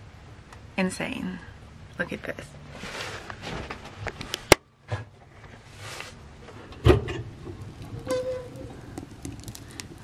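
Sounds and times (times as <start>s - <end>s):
door squeak: 8.0s - 8.7s.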